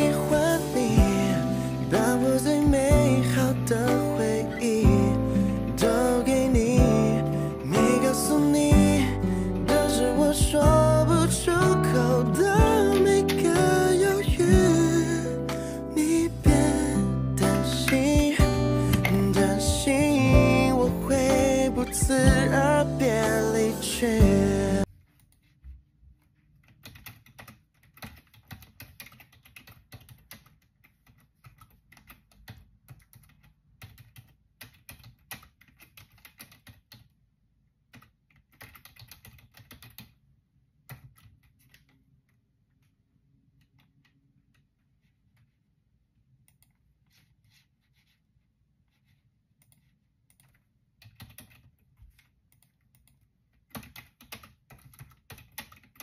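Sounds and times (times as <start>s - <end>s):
typing on computer keyboard: 1.9s - 16.2s, 26.6s - 37.2s, 37.9s - 40.2s, 40.8s - 42.1s, 49.6s - 56.0s.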